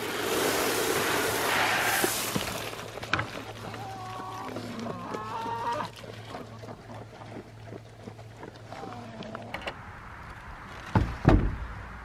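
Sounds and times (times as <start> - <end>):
pigs crunching feed: 0.0 - 9.7
low steady hum: 0.5 - 12.0
pig calls: 3.6 - 6.0.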